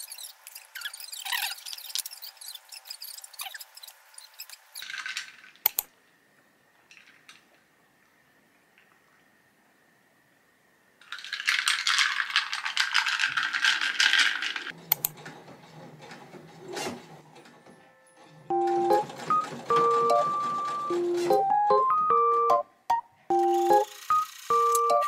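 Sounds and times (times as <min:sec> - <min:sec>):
small hard objects rattling: 0:04.8 - 0:05.6, 0:11.0 - 0:14.7
light piano music: 0:17.7 - 0:23.9
sewing machine running: 0:18.5 - 0:21.5, 0:23.5 - 0:24.9.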